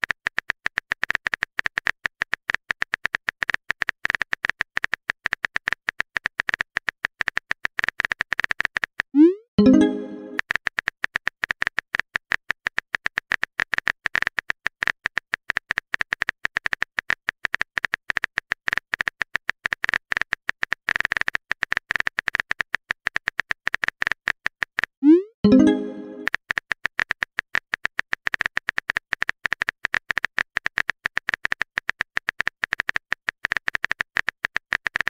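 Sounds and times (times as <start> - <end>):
keyboard typing clicks: 9.2 - 10.4, 25.0 - 26.4
message sent pop: 9.2 - 10.4, 25.0 - 26.3.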